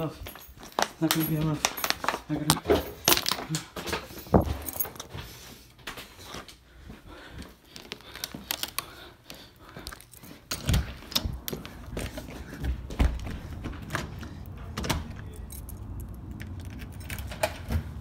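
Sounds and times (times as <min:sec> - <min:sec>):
rustling and handling clicks: 0:07.7 - 0:12.2, 0:13.9 - 0:17.9.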